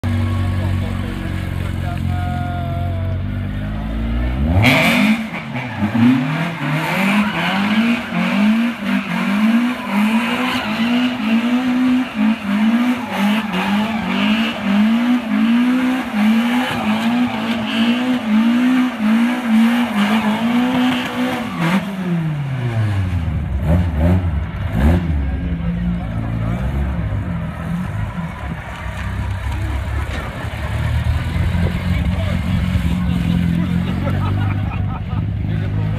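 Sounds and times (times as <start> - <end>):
car engine revving: 0.0 - 35.9
tyres squealing on asphalt: 0.1 - 22.8.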